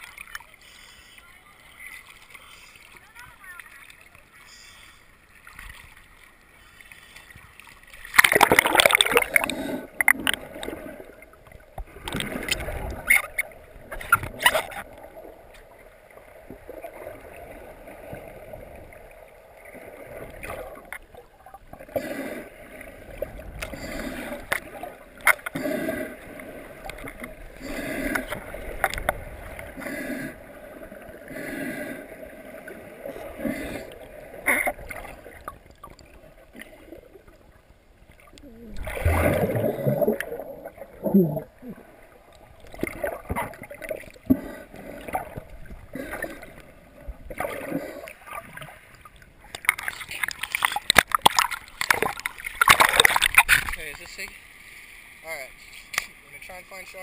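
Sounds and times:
underwater water gurgling: 0.0s - 57.0s
sharp splashes: 5.4s - 11.0s, 38.7s - 41.0s, 49.5s - 54.2s.

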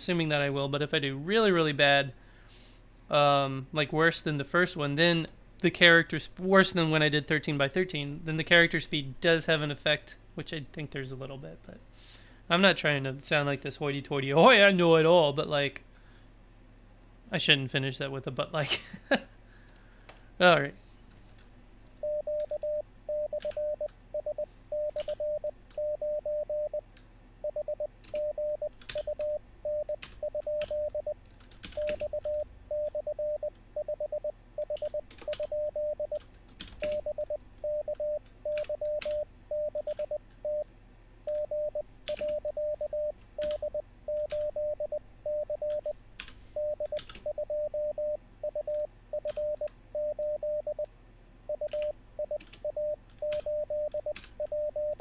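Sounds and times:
morse code tone: 22.0s - 26.8s, 27.4s - 31.2s, 31.8s - 36.2s, 36.9s - 40.6s, 41.3s - 46.0s, 46.6s - 50.9s, 51.5s - 55.0s
computer keyboard keys clicking: 36.6s - 37.0s, 42.1s - 42.4s, 43.4s - 43.6s, 46.9s - 47.3s, 51.7s - 53.5s.

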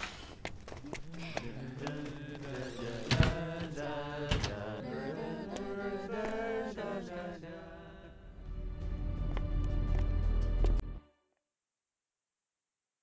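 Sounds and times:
chant-like background music: 1.3s - 11.2s.

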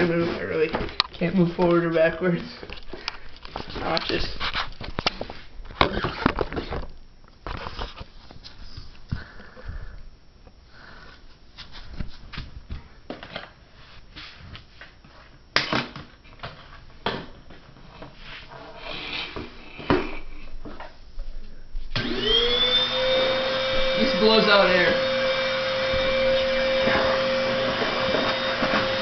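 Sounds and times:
rustling and shuffling: 0.0s - 15.5s, 16.1s - 22.0s.

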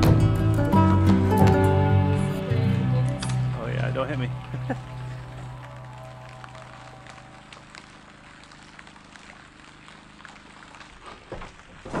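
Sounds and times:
faint background music: 0.0s - 7.6s.

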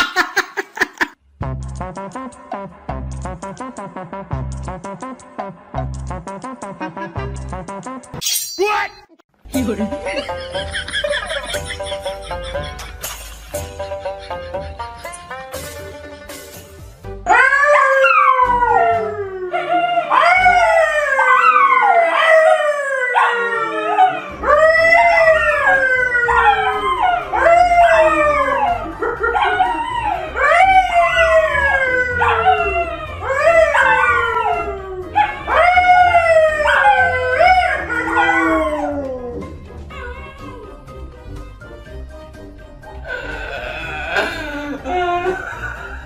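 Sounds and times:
dogs howling: 17.3s - 40.8s
man howling: 43.0s - 46.0s.

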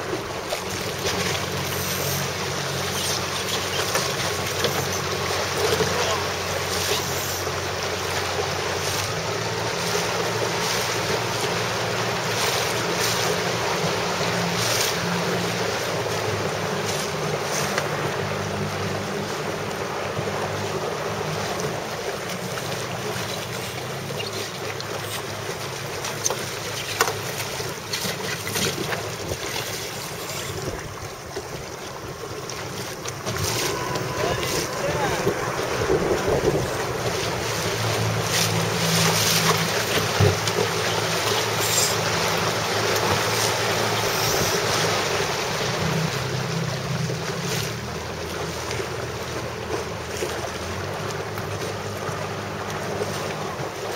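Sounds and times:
water rushing past boat hull: 0.0s - 53.9s
low hum: 32.4s - 47.4s
wind buffeting microphone: 33.0s - 40.7s.

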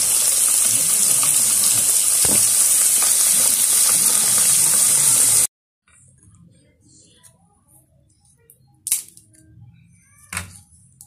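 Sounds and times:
food deep-frying in hot oil: 0.0s - 5.5s.

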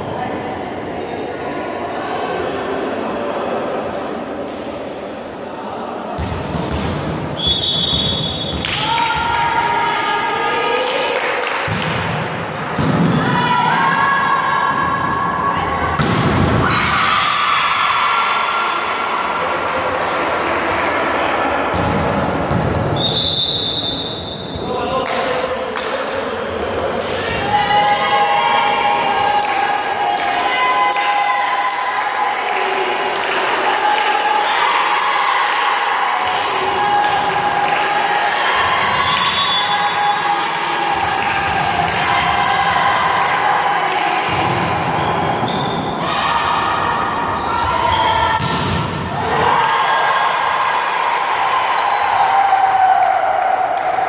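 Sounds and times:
voices of players and spectators: 0.0s - 54.0s
referee's whistle long note: 7.4s - 8.5s, 23.0s - 24.4s
volleyball being hit: 16.0s - 16.7s.

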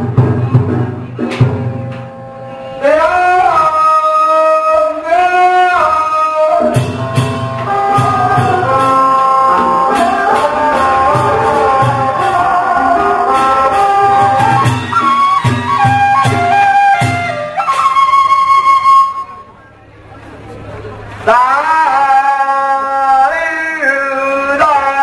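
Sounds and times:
drum beats: 0.0s - 2.4s, 6.5s - 19.3s
sharp percussion strikes: 0.0s - 2.8s, 6.6s - 19.3s
wind instrument melody: 1.6s - 19.7s.

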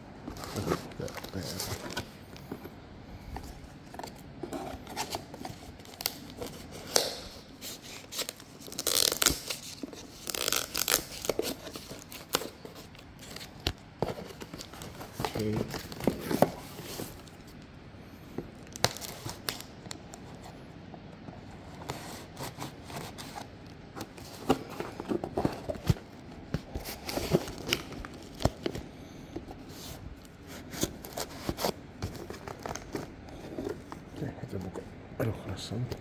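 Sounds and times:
packing tape crackling and tearing: 0.3s - 2.1s, 4.8s - 17.4s, 18.6s - 20.0s.

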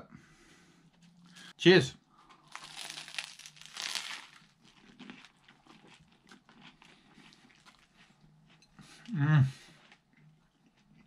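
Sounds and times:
chewing food: 2.2s - 11.0s.

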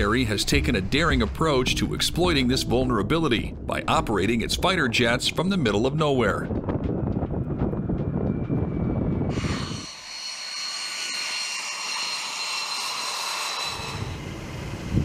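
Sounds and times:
jet engine rumble: 0.0s - 9.8s
high-pitched turbine whine: 6.4s - 15.0s.

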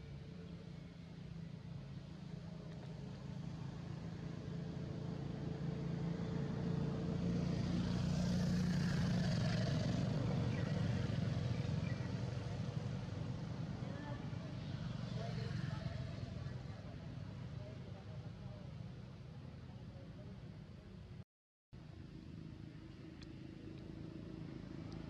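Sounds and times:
motorbike passing: 3.0s - 18.0s.

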